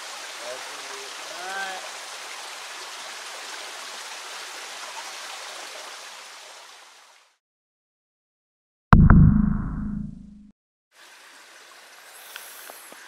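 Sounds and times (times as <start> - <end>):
rushing outdoor hiss: 0.0 - 5.9, 11.0 - 13.0.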